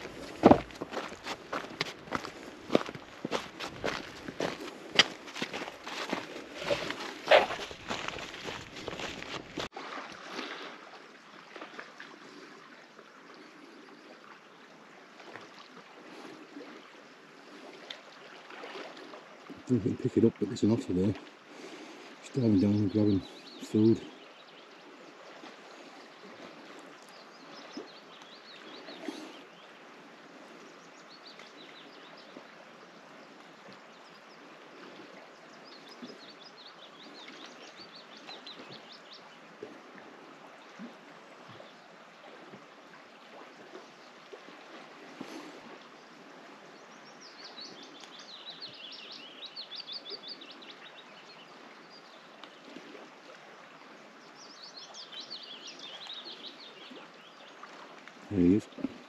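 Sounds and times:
water: 0.0s - 59.0s
wind: 0.0s - 59.0s
small songbirds trilling: 19.7s - 32.6s, 33.2s - 39.4s, 46.7s - 52.6s, 54.2s - 59.0s.

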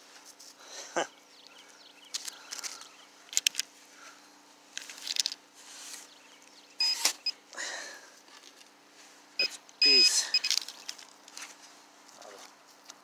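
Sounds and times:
electronic beep: 6.8s - 7.4s, 9.4s - 10.6s.

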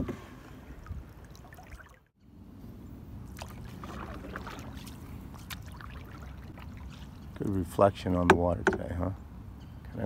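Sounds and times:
water lapping against hull: 0.0s - 2.2s, 3.2s - 7.6s.

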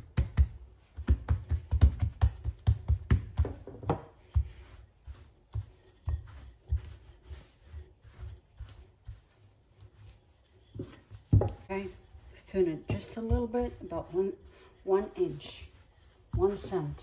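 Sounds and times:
hands pressing dough: 0.0s - 17.0s
rolling pin on dough: 0.0s - 17.0s.

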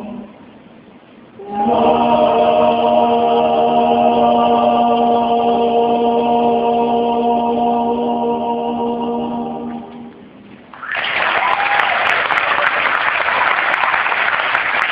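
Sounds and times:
male vocal ensemble holding a chord: 1.4s - 10.2s
audience applause: 10.7s - 14.9s.

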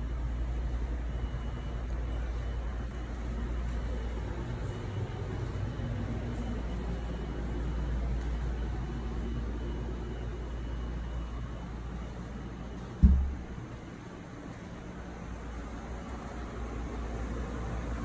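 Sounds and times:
faint hum: 0.0s - 18.0s
heavy thump: 13.0s - 13.5s.

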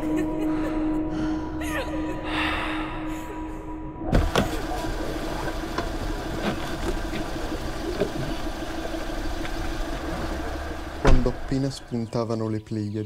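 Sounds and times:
car engine idling: 4.2s - 12.3s.

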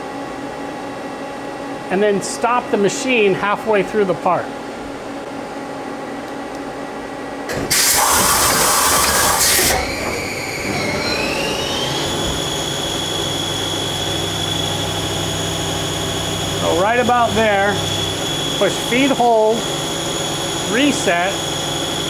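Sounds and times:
lathe spindle whine: 8.8s - 22.0s
low hum: 10.7s - 22.0s
loud rushing noise: 16.5s - 18.8s.

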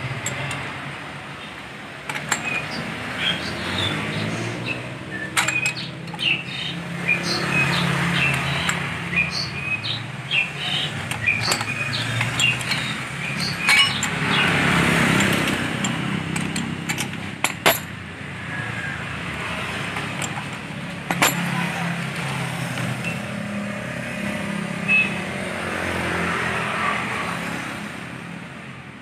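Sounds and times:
metal hand tools clinking: 2.1s - 2.8s, 5.4s - 6.6s, 10.7s - 18.0s, 20.0s - 21.6s.

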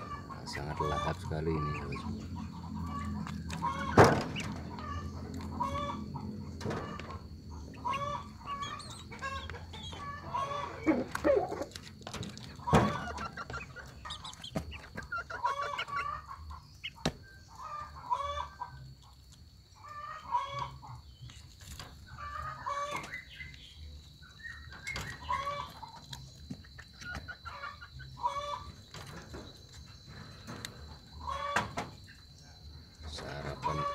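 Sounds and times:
clucking animal calls: 0.0s - 33.9s.

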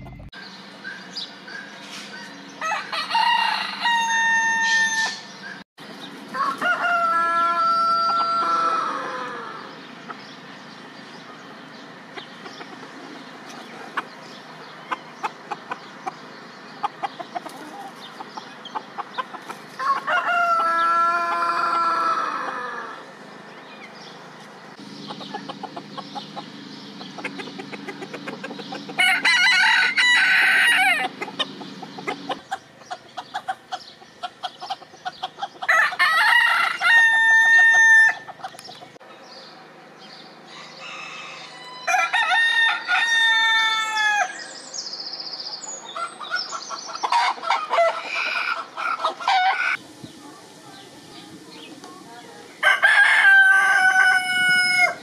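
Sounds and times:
roosters crowing: 0.0s - 39.0s, 40.0s - 49.8s, 52.5s - 55.0s.

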